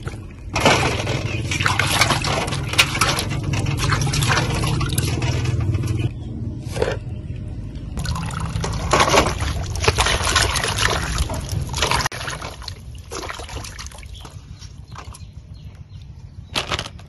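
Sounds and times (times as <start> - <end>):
water splashing in metal basin: 0.0 - 6.1, 8.0 - 15.3.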